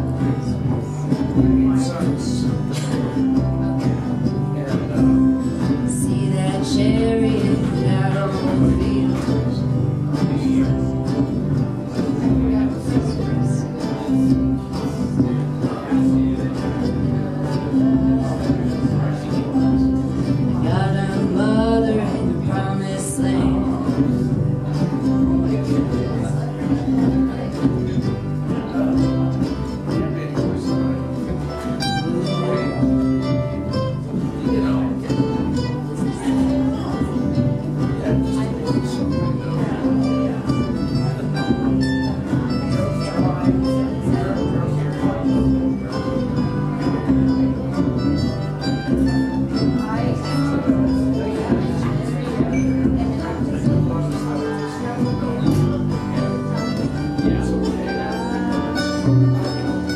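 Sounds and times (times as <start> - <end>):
acoustic guitar strummed: 0.0 - 59.9
upright bass: 0.0 - 59.9
person singing: 5.6 - 11.3, 16.8 - 26.0.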